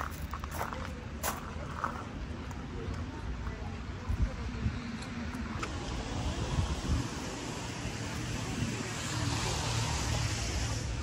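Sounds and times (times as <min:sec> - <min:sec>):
road traffic rumble: 0:00.0 - 0:11.0
car passing hiss: 0:05.7 - 0:11.0
wind on microphone: 0:05.7 - 0:11.0.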